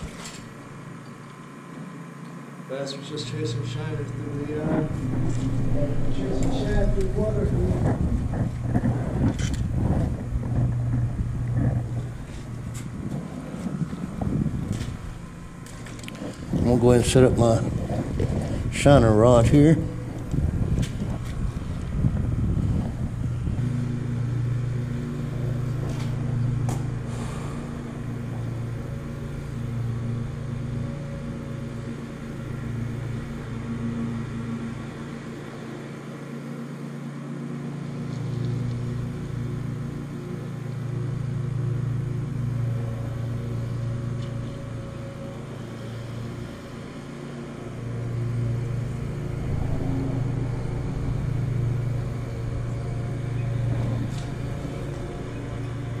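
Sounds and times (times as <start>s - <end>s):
road traffic rumble overhead: 0.0s - 56.0s.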